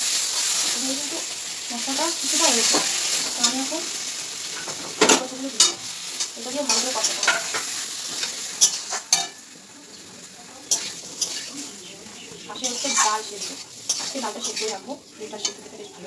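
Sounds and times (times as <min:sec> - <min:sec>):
spice paste sizzling: 0:00.0 - 0:16.0
spatula scraping a pan: 0:02.3 - 0:15.9.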